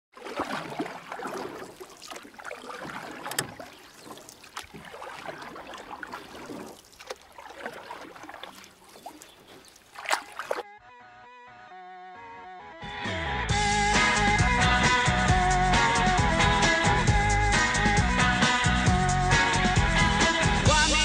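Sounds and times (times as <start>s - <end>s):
water splashing and sloshing: 0.1s - 10.7s.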